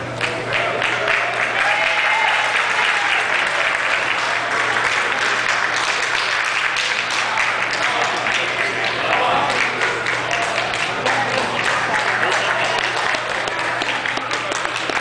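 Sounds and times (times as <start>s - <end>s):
audience applauding: 0.1s - 15.0s
voices: 3.2s - 15.0s.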